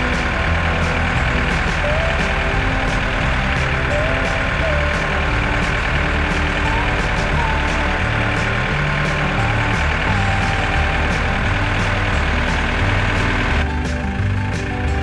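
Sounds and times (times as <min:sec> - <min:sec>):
tractor engine running under load: 0:00.0 - 0:15.0.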